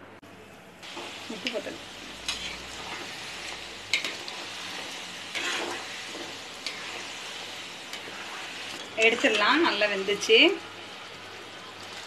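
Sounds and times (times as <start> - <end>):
metal spoon scraping a pan: 0.8 - 10.3
dough deep-frying in oil: 0.8 - 12.0.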